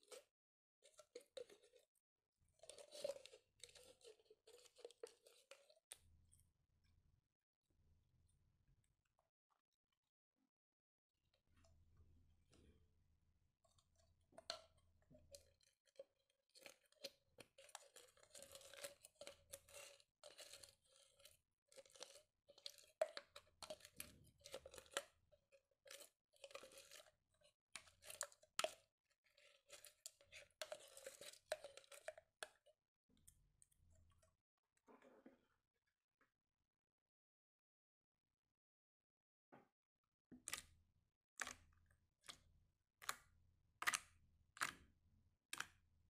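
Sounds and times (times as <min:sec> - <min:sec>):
spoon scraping slime in bottle: 0:00.0 - 0:06.0, 0:14.4 - 0:25.2, 0:25.8 - 0:32.6.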